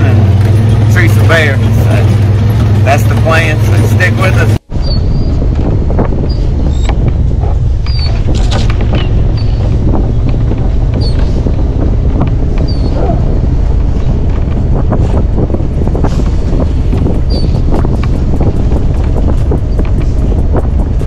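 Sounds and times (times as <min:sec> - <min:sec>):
truck driving on rough track: 0:00.0 - 0:21.0
wind buffeting microphone: 0:00.0 - 0:21.0
short high squeaks: 0:07.8 - 0:09.7.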